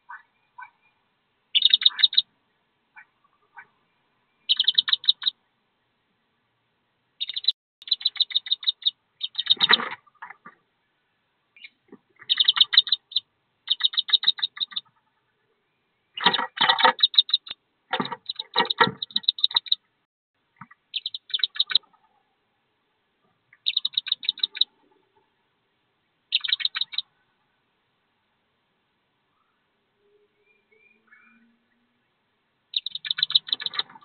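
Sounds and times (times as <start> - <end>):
ducklings peeping: 1.5 - 2.3, 4.5 - 5.3, 7.2 - 10.6, 11.6 - 15.3, 16.2 - 19.8, 20.6 - 22.0, 23.6 - 24.8, 26.3 - 27.1, 32.7 - 34.0.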